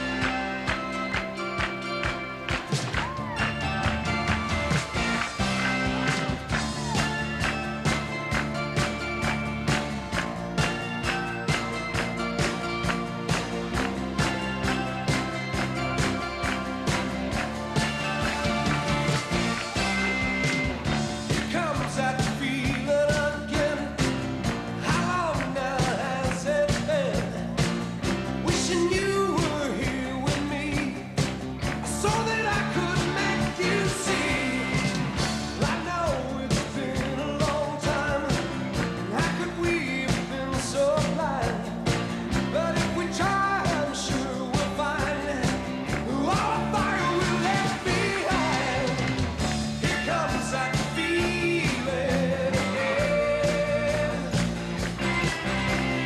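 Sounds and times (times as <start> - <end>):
rock band playing live: 0.0 - 56.0
man singing lead vocal: 21.3 - 24.1, 24.8 - 27.6, 28.4 - 31.2, 31.8 - 41.9, 42.5 - 54.6.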